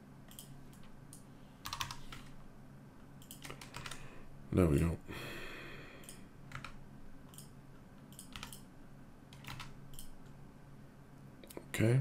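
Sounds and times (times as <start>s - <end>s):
faint low hum: 0.0s - 12.0s
keyboard and mouse clicking: 0.2s - 2.4s, 3.1s - 4.0s, 6.0s - 8.7s, 9.3s - 10.4s.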